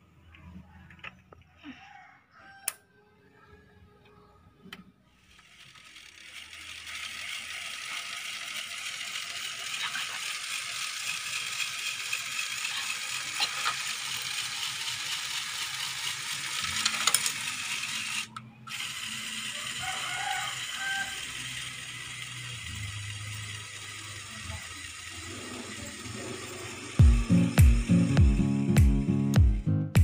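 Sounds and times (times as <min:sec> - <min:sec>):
toy motor gears whirring: 0:05.1 - 0:28.7.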